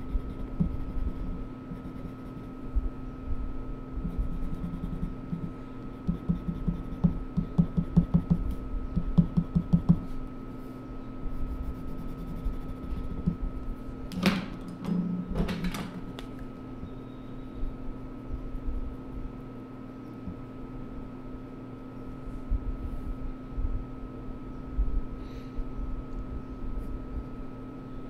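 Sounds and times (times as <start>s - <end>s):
pen scratching on paper: 0.0s - 2.6s, 4.0s - 8.4s, 11.4s - 13.4s.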